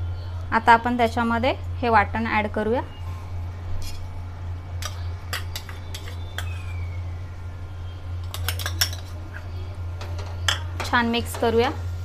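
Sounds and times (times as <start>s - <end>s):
low hum: 0.0s - 12.0s
metal spoon scraping pot: 4.8s - 6.8s, 8.2s - 10.7s.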